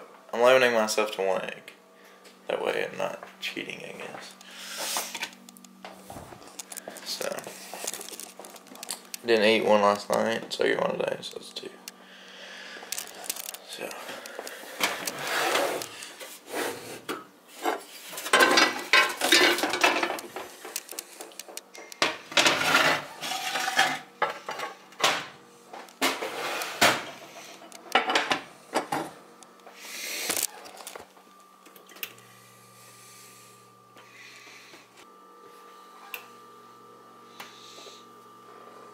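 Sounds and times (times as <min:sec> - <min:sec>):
faint steady hum: 0:00.0 - 0:38.9
cookware clattering and scraping: 0:17.6 - 0:20.2, 0:22.0 - 0:24.8.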